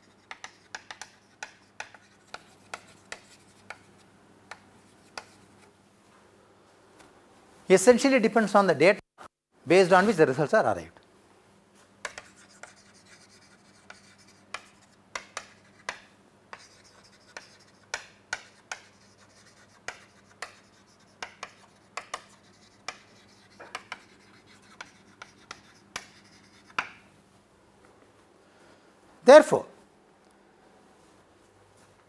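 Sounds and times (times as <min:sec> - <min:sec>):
chalk writing on a chalkboard: 0:00.0 - 0:05.7, 0:12.0 - 0:27.0.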